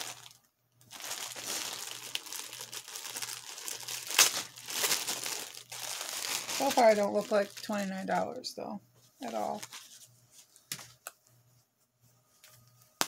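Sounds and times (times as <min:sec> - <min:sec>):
packaging crinkling and rustling: 0:00.0 - 0:08.4, 0:09.2 - 0:11.2.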